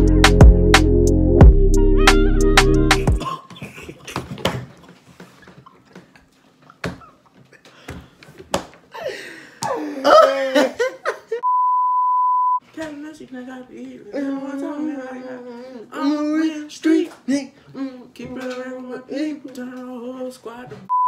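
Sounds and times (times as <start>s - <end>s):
censor bleep: 11.4s - 12.6s.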